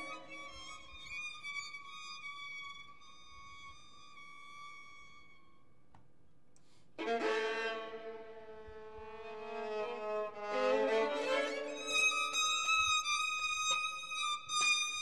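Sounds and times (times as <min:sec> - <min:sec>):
violins playing sustained notes: 0:00.0 - 0:01.4, 0:07.0 - 0:15.0.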